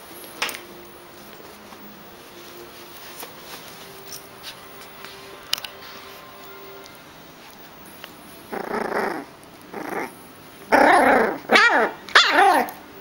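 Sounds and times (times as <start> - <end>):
puppy growling: 8.5 - 12.8
puppy growling yaps: 8.5 - 12.8.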